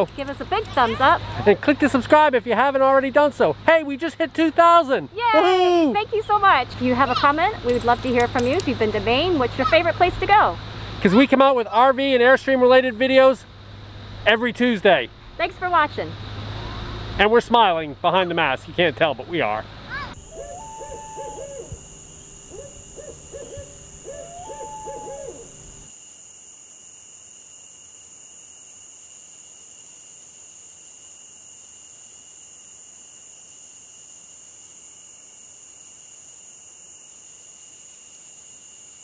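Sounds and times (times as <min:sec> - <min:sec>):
insects trilling: 0:00.0 - 0:39.0
owl hooting: 0:09.4 - 0:10.4, 0:19.9 - 0:25.9.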